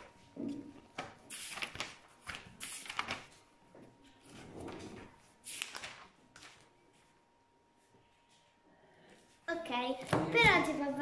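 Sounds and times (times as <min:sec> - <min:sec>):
paper pages turning: 0:00.8 - 0:03.4, 0:04.1 - 0:07.2.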